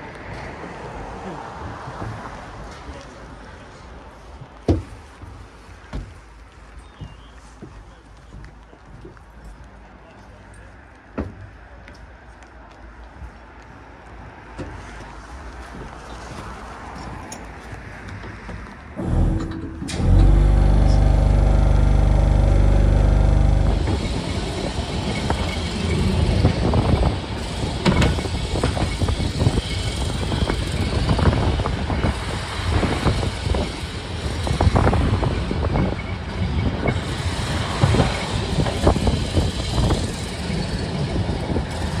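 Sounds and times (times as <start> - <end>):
tram rumbling: 0.0 - 42.0
tram motor humming: 18.6 - 42.0.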